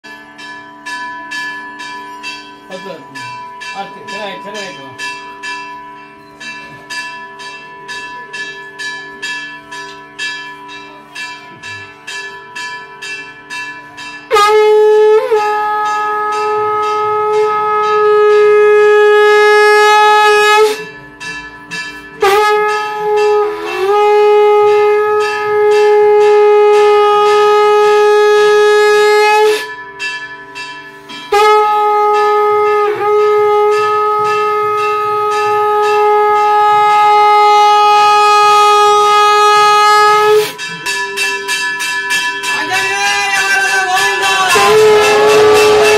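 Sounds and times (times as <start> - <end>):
hand bell ringing: 0.0 - 14.4, 29.5 - 37.0, 40.3 - 45.9
conch shell blasts: 14.3 - 21.0, 22.2 - 29.7, 31.3 - 40.6, 44.0 - 45.9.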